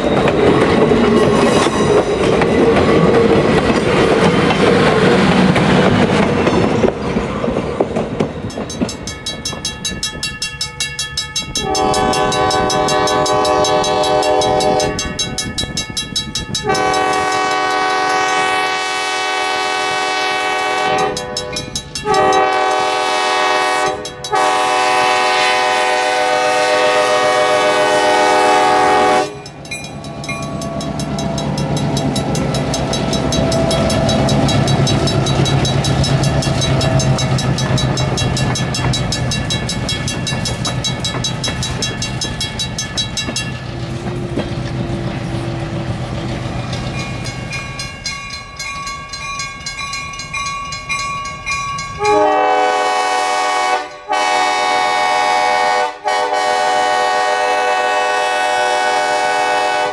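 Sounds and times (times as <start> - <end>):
train rumbling over rails: 0.0 - 59.9
train air horn blasts: 11.6 - 15.2, 16.6 - 29.5, 52.0 - 59.9.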